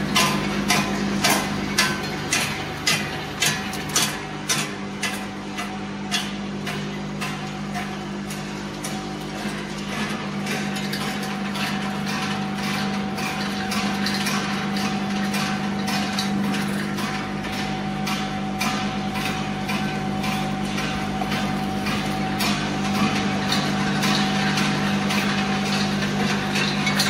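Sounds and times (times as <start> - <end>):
machine motor humming: 0.0 - 27.0.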